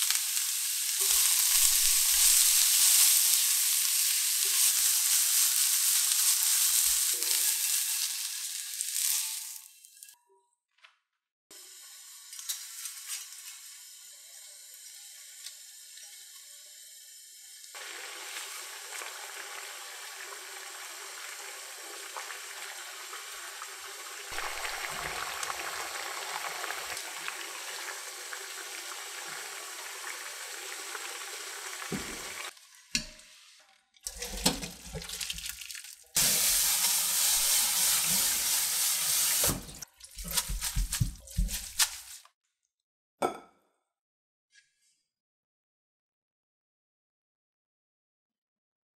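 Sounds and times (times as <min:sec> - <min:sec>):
water boiling in a pan: 0:00.0 - 0:09.7, 0:11.6 - 0:33.3, 0:34.1 - 0:42.2
tongs turning noodles: 0:39.4 - 0:42.2.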